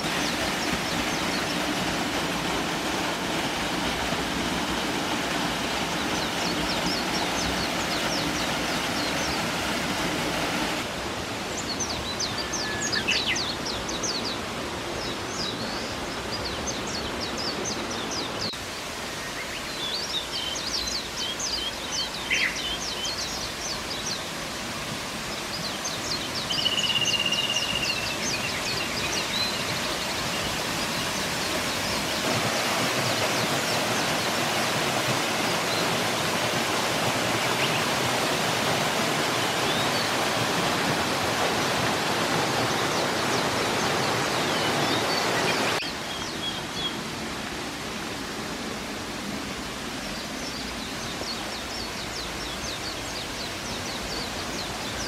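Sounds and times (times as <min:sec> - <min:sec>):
waterfall rushing: 0:00.0 - 0:55.0
small birds chirping and trilling: 0:11.6 - 0:24.5, 0:25.2 - 0:40.8, 0:41.6 - 0:47.1, 0:50.0 - 0:55.0.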